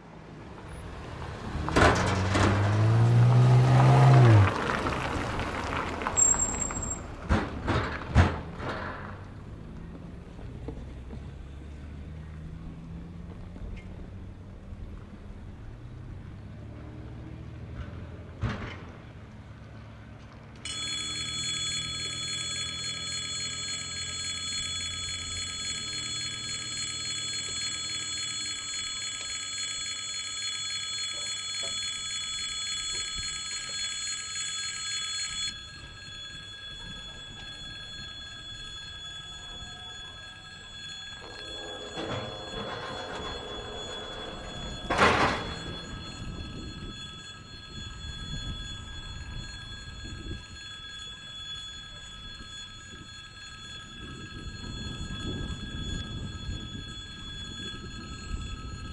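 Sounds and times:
level crossing warning bell: 0:00.8 - 0:18.4, 0:20.6 - 0:58.9
train rumble: 0:35.5 - 0:58.9.

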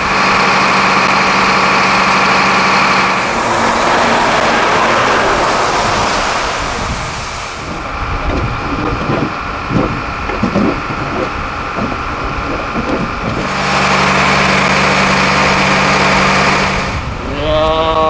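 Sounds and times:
engine running: 0:00.0 - 0:17.2
short low sounds: 0:02.6 - 0:08.4.

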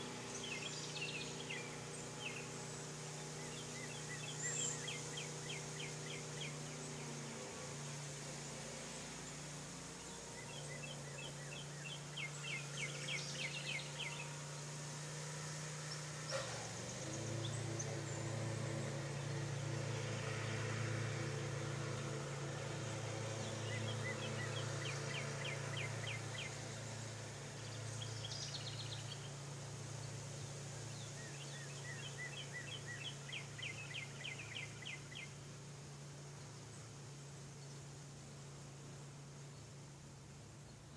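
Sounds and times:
songbird trilling: 0:00.0 - 0:07.3, 0:10.0 - 0:14.6, 0:23.4 - 0:29.4, 0:30.0 - 0:35.4.

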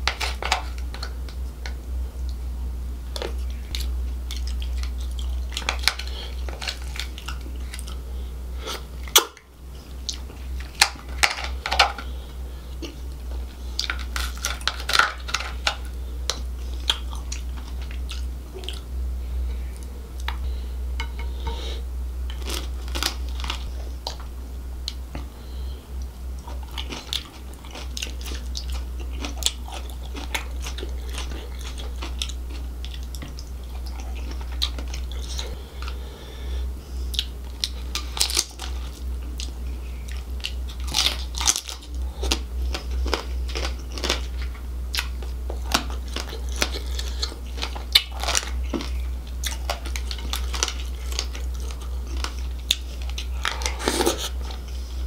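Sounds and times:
steady low hum: 0:00.0 - 0:55.0
chewing and wet mouth sounds: 0:03.1 - 0:08.0, 0:08.7 - 0:12.1, 0:12.7 - 0:18.9, 0:26.0 - 0:36.0, 0:37.0 - 0:54.9.

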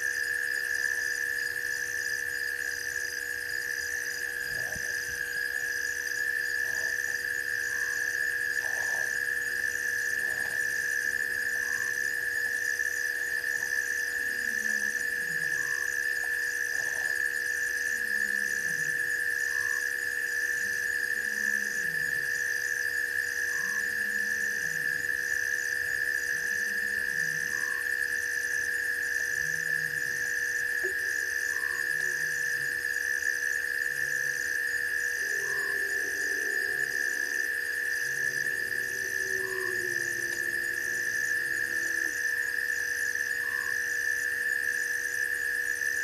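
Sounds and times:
low falling frog croaks: 0:00.0 - 0:46.0.

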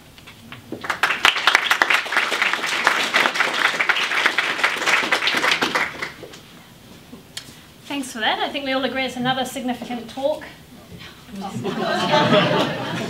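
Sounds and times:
audience applauding: 0:00.7 - 0:06.4.

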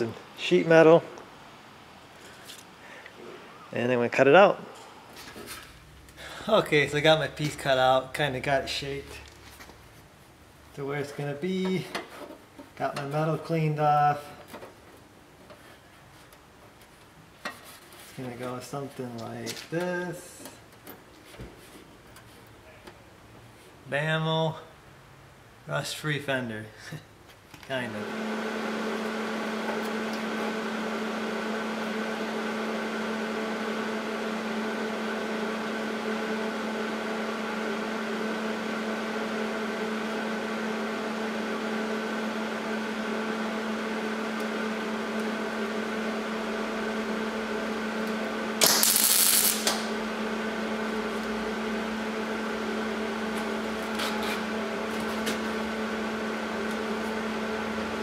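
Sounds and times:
welder electrical hum: 0:00.0 - 0:14.7, 0:27.7 - 0:58.0
welding arc sizzle: 0:47.8 - 0:55.6.

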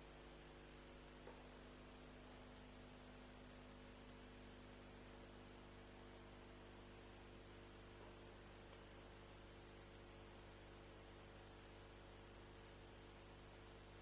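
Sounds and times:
electrical hum and hiss: 0:00.0 - 0:14.0.

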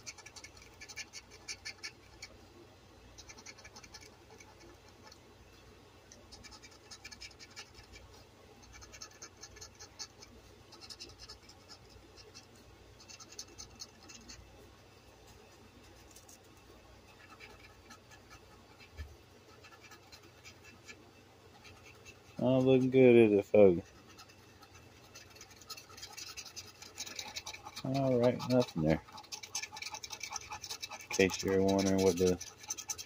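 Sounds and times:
coin scratching lottery ticket: 0:00.0 - 0:02.2, 0:03.2 - 0:05.2, 0:10.8 - 0:14.4, 0:21.6 - 0:33.0.

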